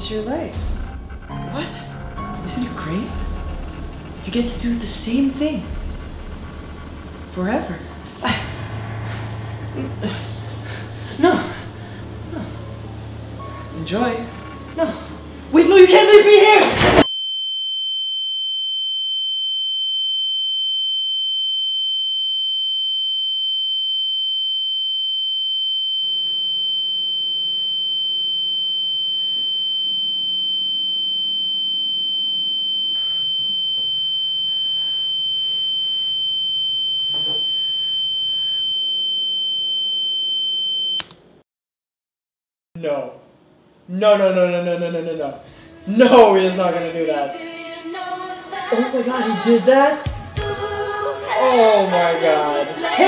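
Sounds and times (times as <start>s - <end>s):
high-pitched electronic tone: 0.0s - 14.8s, 26.1s - 41.0s.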